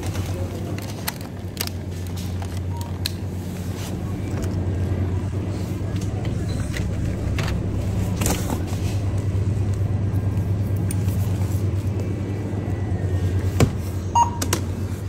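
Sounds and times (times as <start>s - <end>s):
refrigerated cases humming: 0.0s - 15.0s
short electronic beep: 14.1s - 14.5s.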